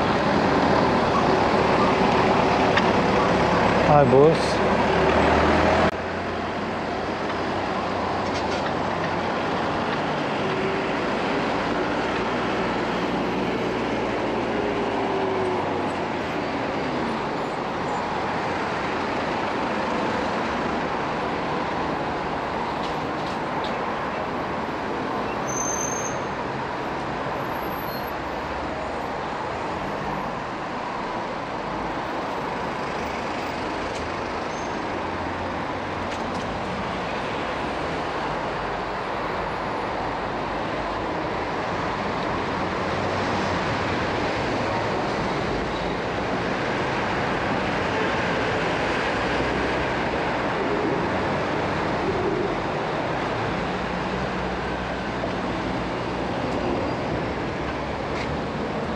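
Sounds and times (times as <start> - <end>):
city traffic on busy street: 0.0 - 58.9.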